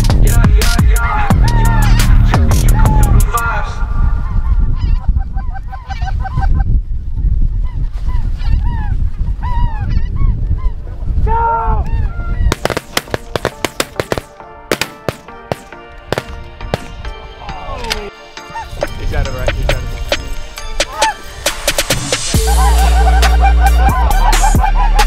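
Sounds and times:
wind rumbling on microphone: 0:00.0 - 0:13.3
geese honking: 0:01.1 - 0:03.1, 0:04.1 - 0:06.7, 0:18.3 - 0:18.9, 0:20.6 - 0:25.0.

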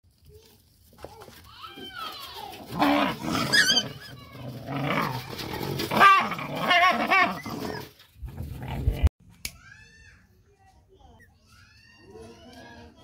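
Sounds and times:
puppies growling: 0:02.5 - 0:09.1
puppies whining and yelping: 0:06.7 - 0:08.0.

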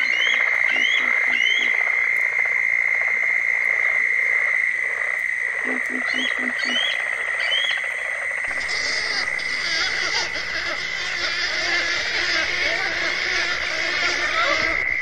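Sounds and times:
eagle calling high piping notes: 0:08.5 - 0:14.8.

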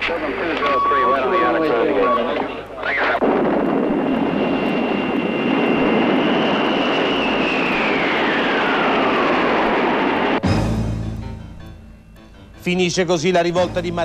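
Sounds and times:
aircraft engines whining: 0:00.0 - 0:11.0.

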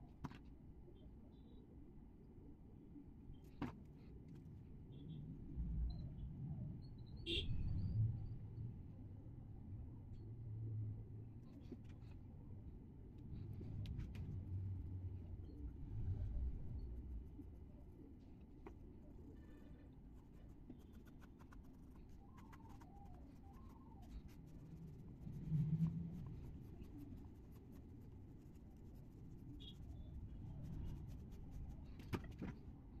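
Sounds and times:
pencil scratching on paper: 0:20.2 - 0:32.3.

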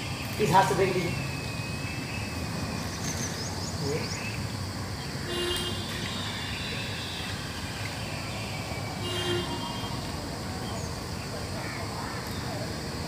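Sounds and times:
outdoor background din: 0:00.0 - 0:13.0
horn tooting: 0:05.3 - 0:07.3, 0:09.0 - 0:10.1.

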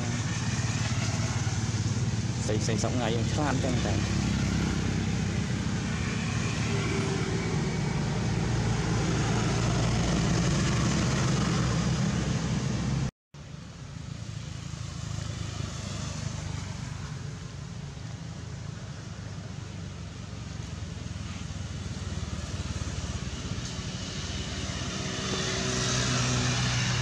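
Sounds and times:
vehicle engine humming: 0:00.0 - 0:27.0.

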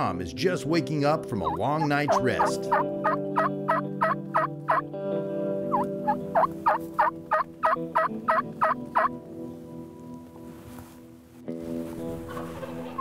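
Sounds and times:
turkey yelping: 0:01.4 - 0:04.8, 0:05.7 - 0:09.1.

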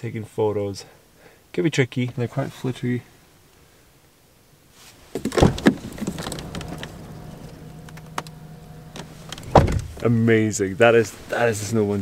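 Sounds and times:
loud thump: 0:05.2 - 0:10.1
electric window motor humming: 0:05.3 - 0:10.2.

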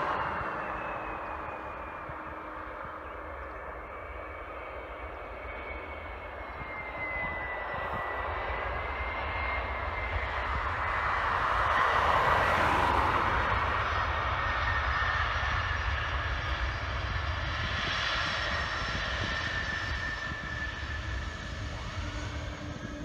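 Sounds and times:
jet engines roaring with whine: 0:00.0 - 0:23.0.

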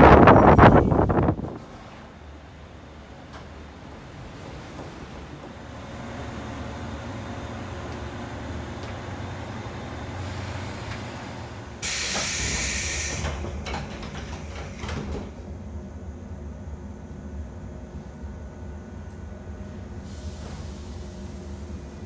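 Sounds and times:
electric train low hum: 0:00.0 - 0:22.0
compressed-air hiss: 0:11.8 - 0:13.4, 0:20.0 - 0:22.0
sliding doors knocking shut: 0:11.9 - 0:15.4.

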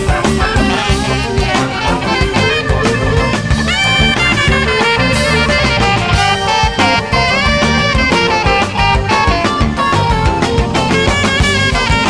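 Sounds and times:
instrumental band music: 0:00.0 - 0:12.0.

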